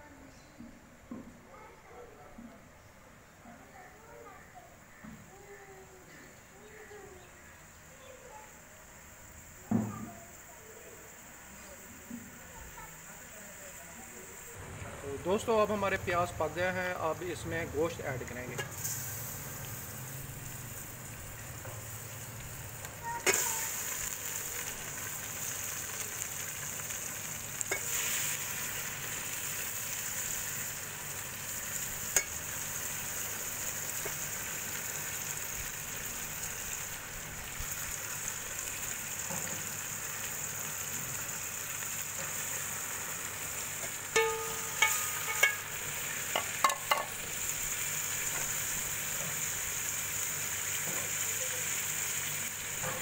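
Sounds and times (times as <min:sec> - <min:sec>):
chicken sizzling in oil: 0:06.6 - 0:53.0
ladle clinking against pot: 0:44.1 - 0:45.7, 0:46.4 - 0:47.1.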